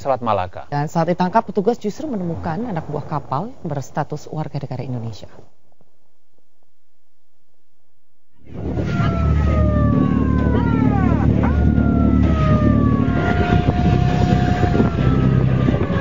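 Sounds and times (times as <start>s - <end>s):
siren wailing: 8.4s - 16.0s
boat engine running: 8.5s - 16.0s
wind and water rushing: 8.5s - 16.0s.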